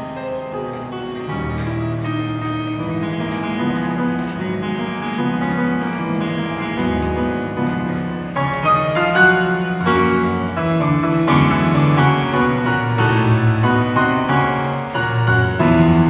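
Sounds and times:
instrumental piano music: 0.0s - 16.0s.

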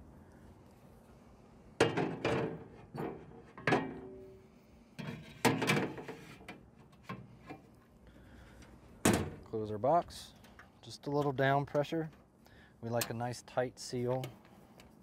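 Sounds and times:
metal plate clanking on metal box: 1.8s - 4.2s, 5.0s - 6.2s.

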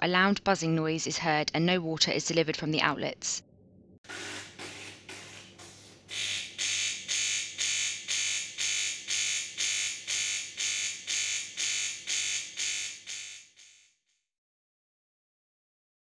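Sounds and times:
coffee machine pump buzzing: 4.1s - 12.7s.

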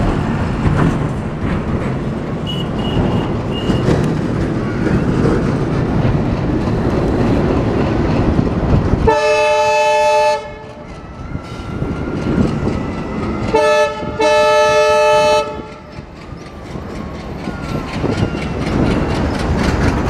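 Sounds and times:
diesel locomotive rumbling: 0.0s - 20.0s
locomotive horn blasts: 2.4s - 3.8s, 9.1s - 10.8s, 13.5s - 15.8s.

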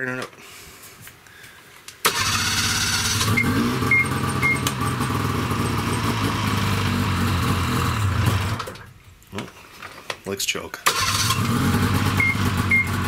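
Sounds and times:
snowmobile engine running: 3.2s - 8.8s.

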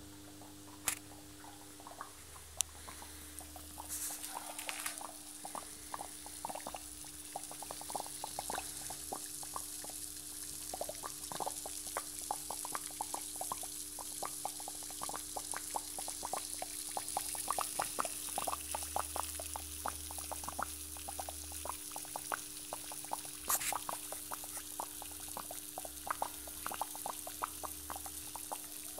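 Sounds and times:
steady low hum: 0.0s - 21.7s
gas bubbling through water: 0.3s - 28.9s.

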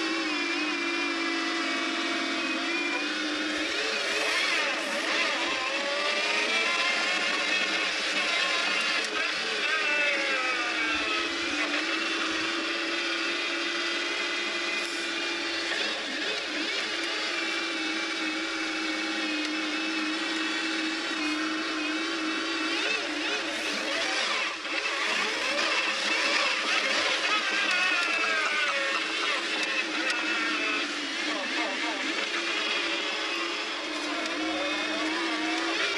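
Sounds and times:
car engine from inside cabin: 1.0s - 12.6s, 28.9s - 35.9s.

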